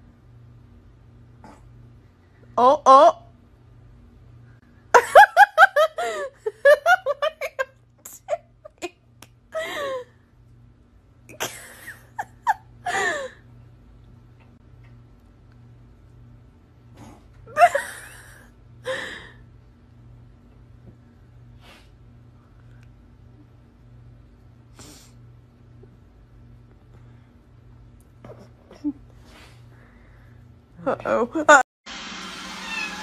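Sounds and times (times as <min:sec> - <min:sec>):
person giggling and laughing: 0:04.9 - 0:09.0, 0:11.3 - 0:13.4, 0:17.5 - 0:19.0.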